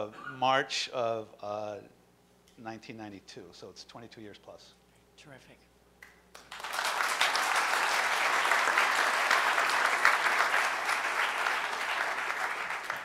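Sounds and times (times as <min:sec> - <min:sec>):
crowd applauding: 0:06.3 - 0:13.0.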